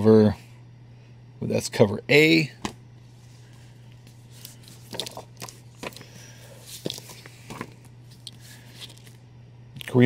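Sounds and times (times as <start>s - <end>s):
steady low hum: 0.0s - 10.0s
comic books rustling and tapping: 4.0s - 9.2s.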